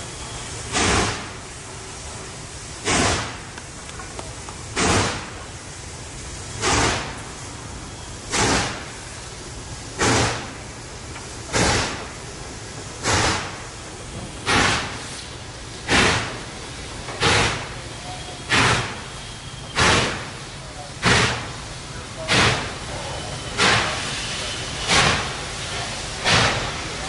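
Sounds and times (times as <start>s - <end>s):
steam locomotive exhaust chuffing: 0.0s - 27.0s.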